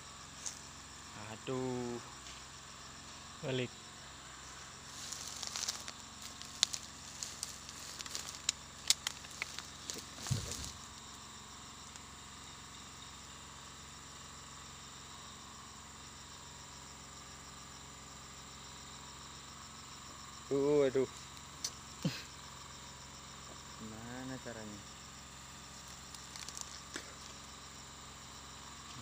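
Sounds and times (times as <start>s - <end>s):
insect chirr: 0.0s - 29.0s
dry leaves and twigs crackling: 4.5s - 11.1s, 25.4s - 27.5s.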